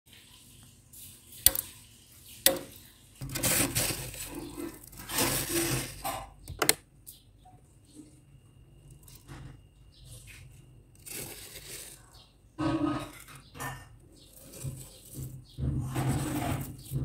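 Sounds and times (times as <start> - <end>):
crunching and scraping frost: 3.2 - 6.3, 10.0 - 17.0.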